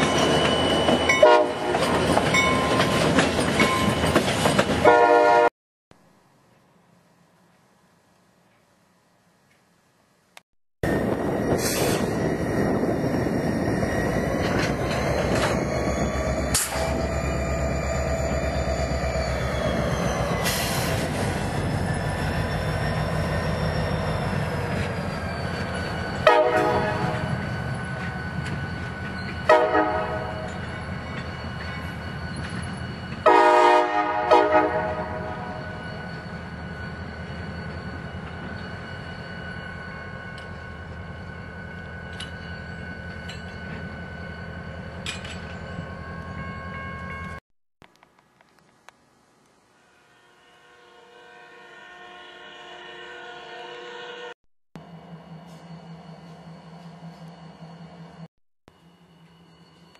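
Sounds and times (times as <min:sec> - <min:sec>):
freight train rumbling past: 0:00.0 - 0:05.5, 0:10.8 - 0:47.4
locomotive air horn blasts: 0:01.2 - 0:01.7, 0:04.8 - 0:05.5, 0:26.2 - 0:27.3, 0:29.5 - 0:30.4, 0:33.2 - 0:35.7, 0:49.8 - 0:54.3.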